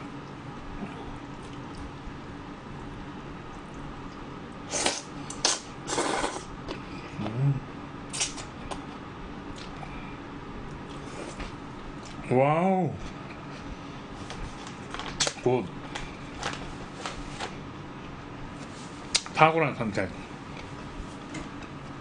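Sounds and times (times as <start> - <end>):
slurping noodles: 4.7 - 6.6.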